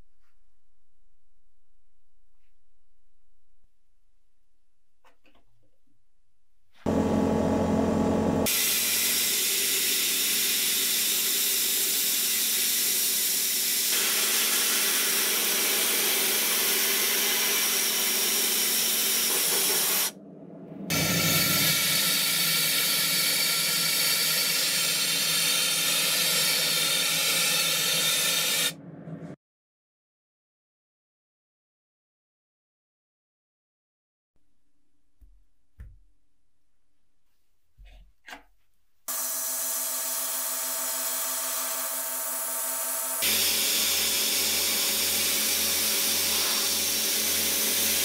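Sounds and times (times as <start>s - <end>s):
powder-coating gun hissing: 43.2s - 47.9s
compressed air spray gun hissing: 43.2s - 48.0s.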